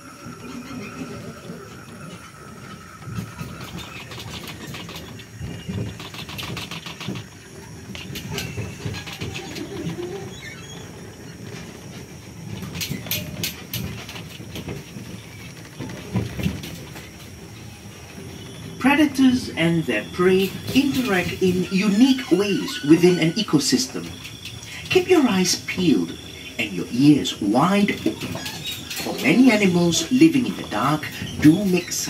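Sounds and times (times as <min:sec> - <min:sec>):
tram rumbling: 0:00.0 - 0:32.0
rattling clicks: 0:01.7 - 0:32.0.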